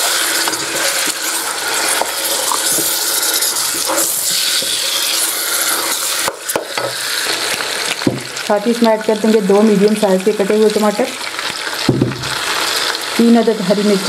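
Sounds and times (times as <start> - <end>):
wooden spoon scraping a pot: 0.0 - 7.5
chicken sizzling in hot oil: 0.0 - 14.0.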